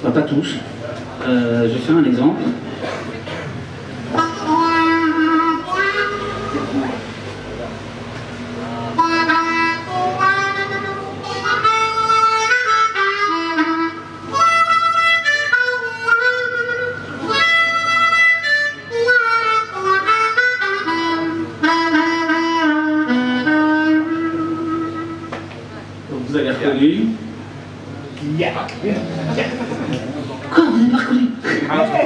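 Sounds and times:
harmonica melody: 4.0s - 7.6s, 8.7s - 25.5s.

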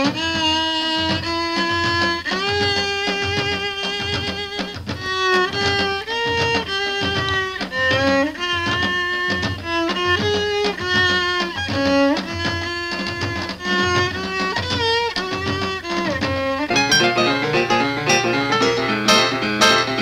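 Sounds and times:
instrumental music with sliding notes: 0.0s - 20.0s
steady low beat: 15.8s - 20.0s.

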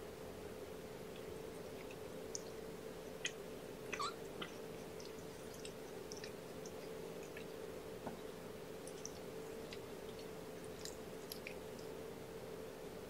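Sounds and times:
low electrical hum: 0.0s - 13.0s
cat licking: 4.3s - 7.6s, 8.7s - 12.0s.

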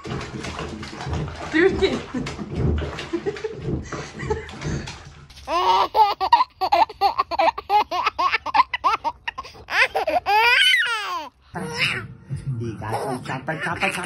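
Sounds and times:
baby laughing: 5.3s - 12.0s, 12.9s - 14.0s.

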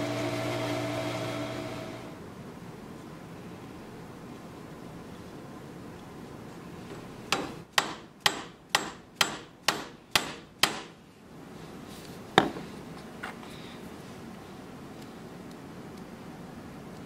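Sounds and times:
mallet striking wooden dowel: 7.3s - 10.9s.

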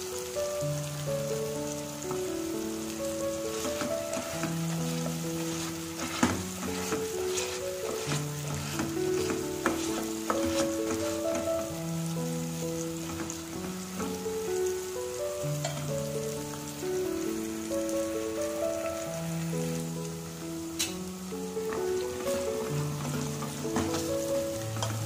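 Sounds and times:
soft background music: 0.0s - 25.0s
spices sizzling in hot oil: 0.0s - 25.0s
metal spatula scraping pan: 3.5s - 11.5s, 21.7s - 25.0s.

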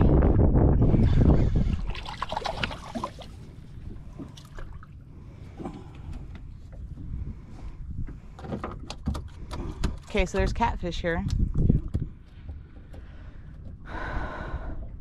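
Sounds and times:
wind rumble on microphone: 0.0s - 15.0s
water splashing: 1.0s - 6.1s.

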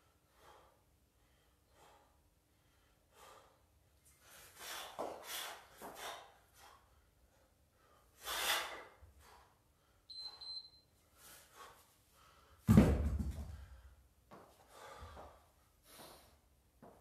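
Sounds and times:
person breathing hard: 0.0s - 10.1s, 11.1s - 12.7s, 13.5s - 16.5s
short high beep: 10.1s - 10.8s.

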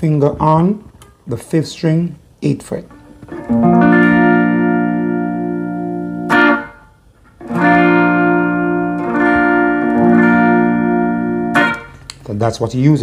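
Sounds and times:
electric guitar chord ringing: 2.8s - 12.1s.

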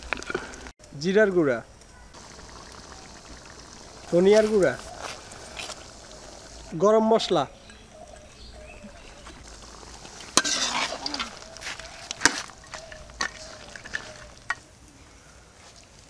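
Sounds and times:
meat sizzling in a pot: 2.2s - 14.6s
utensil knocking and scraping pot: 7.6s - 14.6s.

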